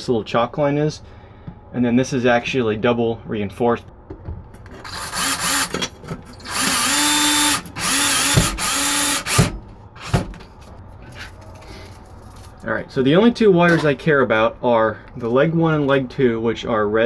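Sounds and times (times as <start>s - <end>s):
electric drill whining: 4.8s - 9.5s.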